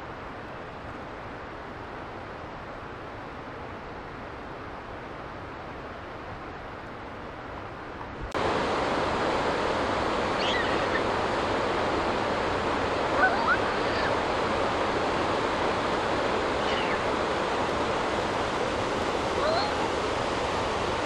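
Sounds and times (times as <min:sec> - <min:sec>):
water rushing: 0:00.0 - 0:21.0
faint whistling calls: 0:10.4 - 0:11.1, 0:13.2 - 0:14.2, 0:16.6 - 0:17.1.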